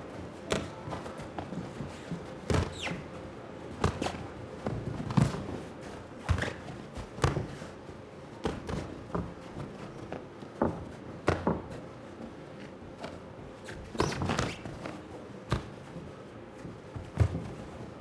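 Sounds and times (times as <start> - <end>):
shoe squeak: 2.5 - 3.2, 13.6 - 15.0
boxing gloves thudding: 3.8 - 5.5, 6.2 - 7.7, 8.4 - 11.8.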